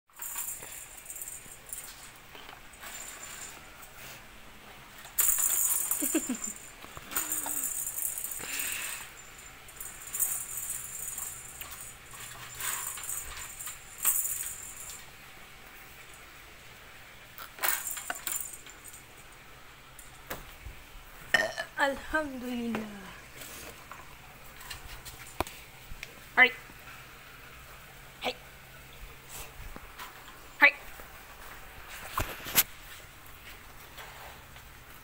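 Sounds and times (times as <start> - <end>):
plastic toy rattling and clattering: 0.1 - 3.7, 5.0 - 15.1, 17.4 - 19.2.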